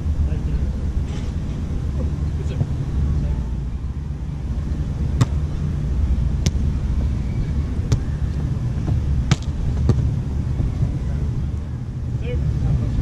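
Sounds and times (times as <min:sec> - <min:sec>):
steady low rumble: 0:00.0 - 0:13.0
volleyball hit by hands: 0:05.1 - 0:05.5, 0:06.4 - 0:06.7, 0:07.9 - 0:08.2, 0:08.8 - 0:10.7.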